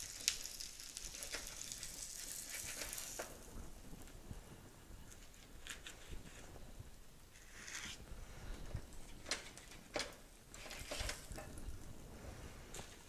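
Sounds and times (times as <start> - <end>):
sandwiches sizzling on grill: 0.0 - 3.5.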